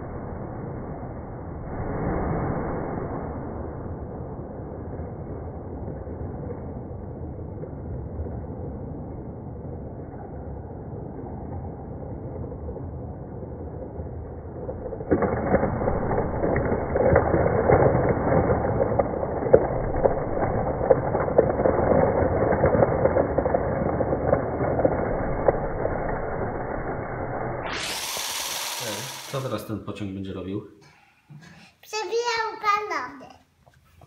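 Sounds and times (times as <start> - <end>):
toy train motor rumble: 27.8 - 29.4.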